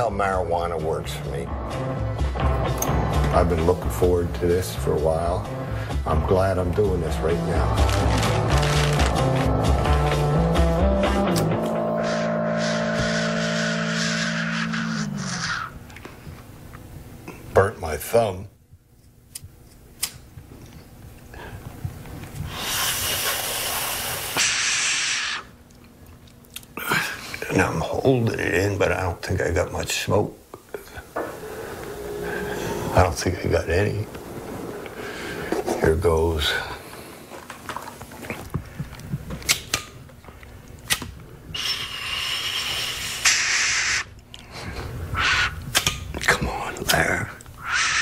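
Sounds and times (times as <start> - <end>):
hissing inhale through pipe: 22.4 - 25.5, 31.2 - 33.0, 41.6 - 45.6.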